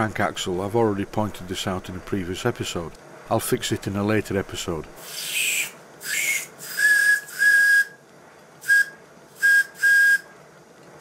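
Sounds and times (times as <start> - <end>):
steam hissing: 5.0 - 7.9, 8.6 - 10.2
steam whistle toots: 5.0 - 8.0, 8.6 - 10.3.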